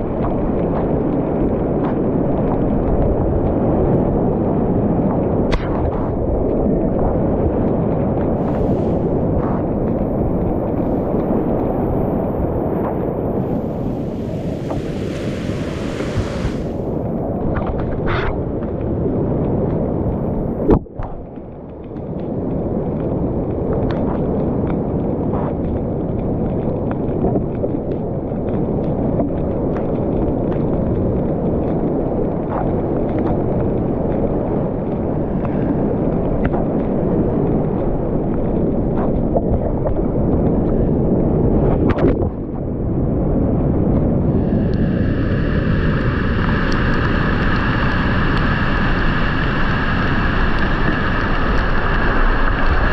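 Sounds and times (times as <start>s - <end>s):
whitewater rapids rushing: 13.5s - 16.9s.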